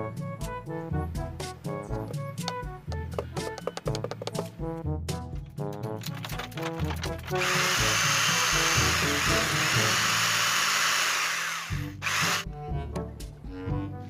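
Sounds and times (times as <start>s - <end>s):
background music: 0.0s - 14.0s
electric drill boring through metal: 7.2s - 12.5s.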